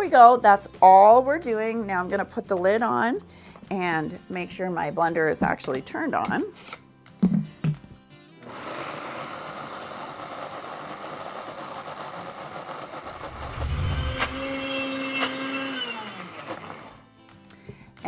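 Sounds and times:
blender motor running: 0:08.4 - 0:17.0.

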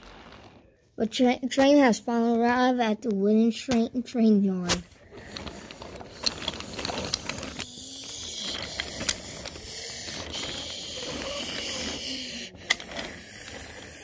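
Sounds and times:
toy train wheels rolling: 0:04.7 - 0:14.0.

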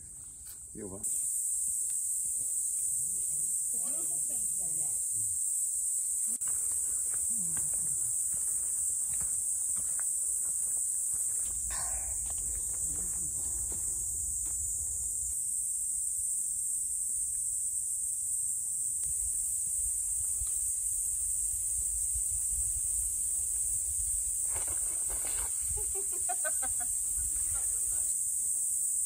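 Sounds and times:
high-pitched insect chorus: 0:00.0 - 0:29.0.

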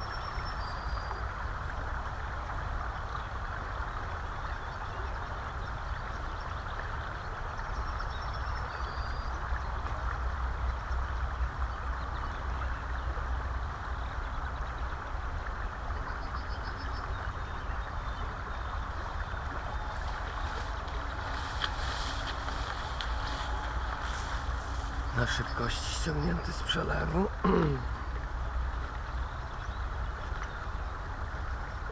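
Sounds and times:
wind rumbling on microphone: 0:00.0 - 0:26.4
river water rushing: 0:17.2 - 0:31.9
clicks and brushing noises: 0:20.0 - 0:25.1.

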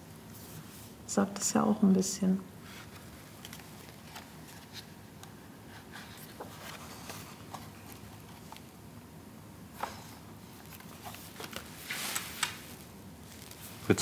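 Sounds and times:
paper pages rustling: 0:02.7 - 0:08.7, 0:09.8 - 0:14.0.

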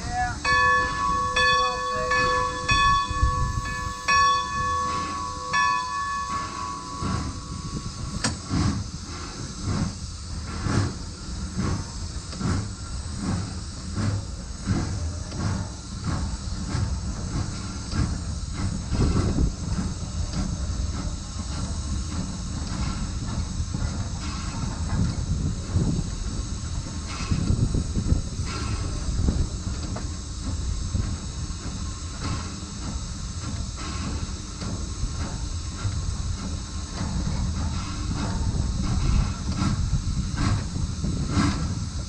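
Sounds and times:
locomotive bell ringing: 0:00.0 - 0:08.6
steam hiss: 0:00.0 - 0:42.0
steam locomotive exhaust chuffs: 0:00.0 - 0:42.0.

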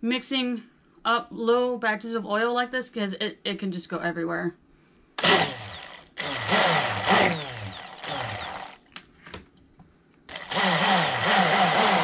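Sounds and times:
stick blender whirring: 0:05.2 - 0:08.9, 0:10.3 - 0:12.0.

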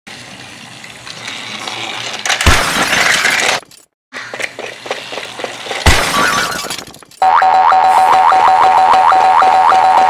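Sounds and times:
clicks and clatter: 0:01.0 - 0:07.2
glass shattering: 0:02.4 - 0:03.6, 0:05.8 - 0:07.1.

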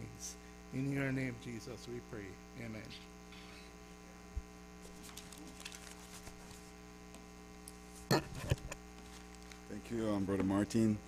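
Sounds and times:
electrical mains hum: 0:00.0 - 0:11.0
faint rustles and clicks: 0:04.8 - 0:06.8.

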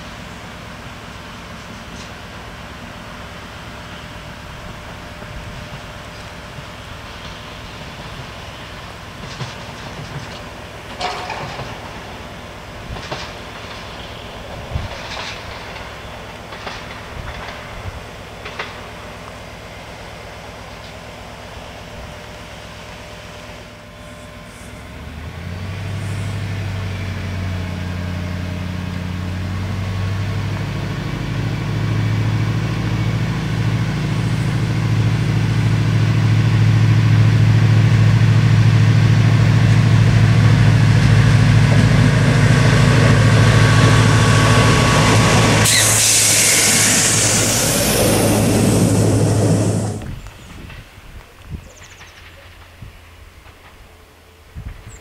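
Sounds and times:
diesel railbus engine accelerating: 0:00.0 - 0:55.0
rush of wheel and air noise: 0:40.9 - 0:51.7.

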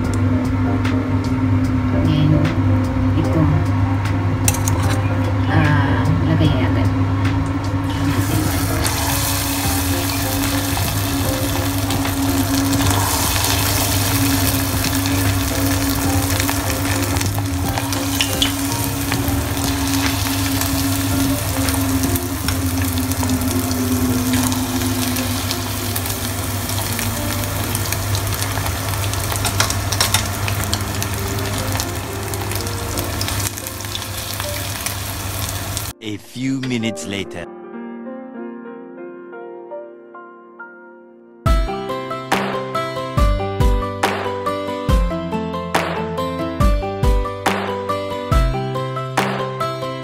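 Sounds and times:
steady low hum: 0:00.0 - 0:35.9
chicken deep-frying in oil: 0:07.8 - 0:36.0.

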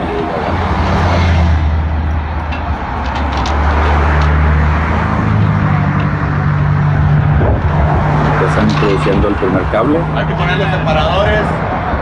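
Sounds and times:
traffic engine hum: 0:00.0 - 0:12.0.

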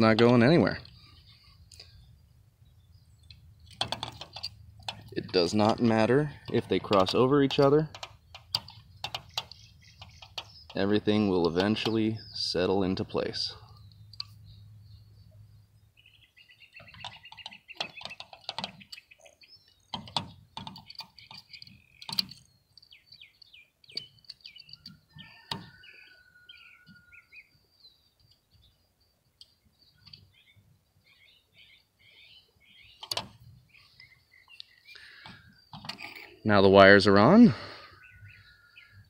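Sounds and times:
small birds chirping: 0:00.0 - 0:39.0
clicks and taps of metal parts: 0:03.2 - 0:10.8, 0:13.7 - 0:14.4, 0:16.9 - 0:19.1, 0:19.8 - 0:25.7, 0:33.0 - 0:33.4.

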